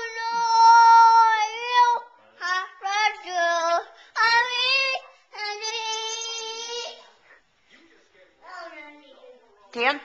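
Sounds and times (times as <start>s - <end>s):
toddler singing: 0.0s - 7.0s.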